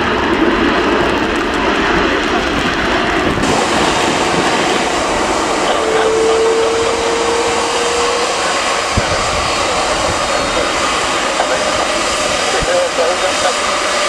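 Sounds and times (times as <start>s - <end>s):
jet engines rushing: 0.0s - 14.0s
mid-pitched hum: 3.4s - 14.0s.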